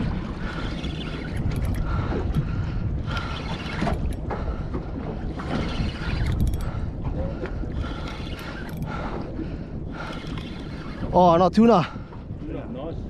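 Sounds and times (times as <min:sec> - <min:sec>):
fishing reel whining: 0:00.0 - 0:02.3, 0:03.1 - 0:04.2, 0:05.3 - 0:06.8, 0:07.7 - 0:09.2, 0:09.9 - 0:11.3
boat engine rumbling: 0:00.0 - 0:13.0
wind on microphone: 0:00.0 - 0:13.0
fishing reel clicks: 0:05.6 - 0:06.8.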